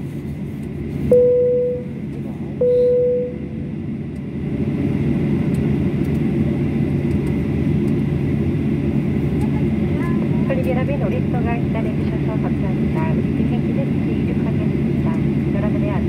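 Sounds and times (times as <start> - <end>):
jet cabin hum: 0.0 - 16.0
airliner cabin chime: 1.1 - 3.8.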